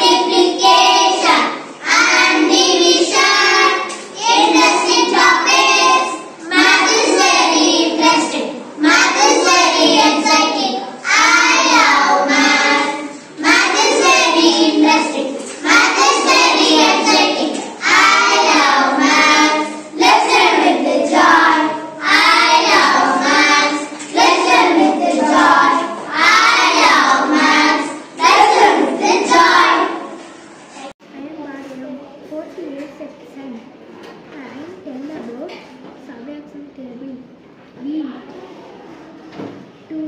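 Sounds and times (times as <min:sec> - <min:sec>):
girls singing in unison: 0:00.0 - 0:30.2.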